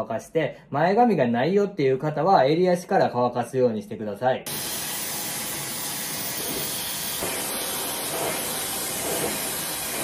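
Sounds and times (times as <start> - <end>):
hair dryer blowing: 4.5 - 10.0.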